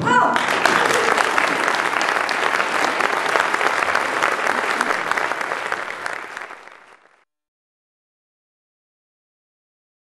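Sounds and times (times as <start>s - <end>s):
audience applauding: 0.3s - 7.2s.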